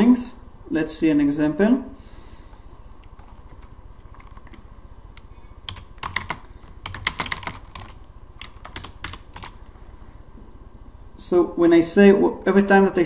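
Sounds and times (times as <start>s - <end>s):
keyboard keys clicking: 3.1s - 4.6s, 5.7s - 9.6s.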